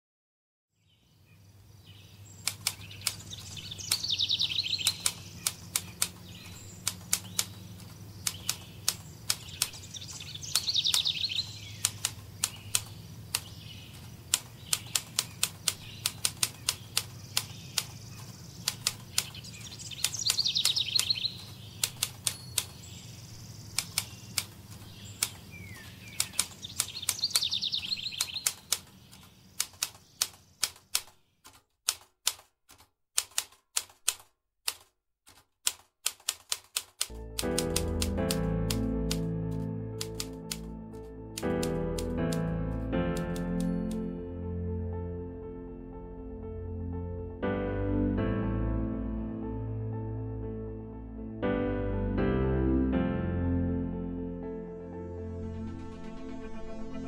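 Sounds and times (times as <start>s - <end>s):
bird trilling: 1.3s - 31.0s
keyboard typing: 2.4s - 22.8s, 23.7s - 44.1s.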